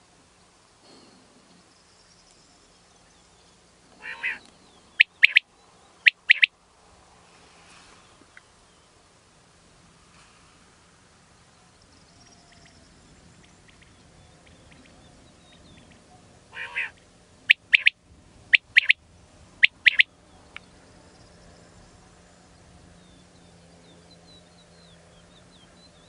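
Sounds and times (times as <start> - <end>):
quail singing: 4.0 - 5.4, 6.0 - 6.5, 13.6 - 19.0, 19.6 - 20.1.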